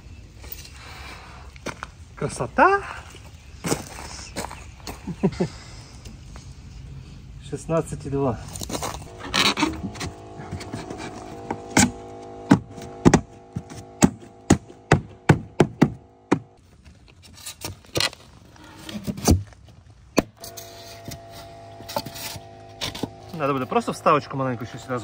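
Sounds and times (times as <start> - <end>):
sharp knocks: 11.5 - 16.6.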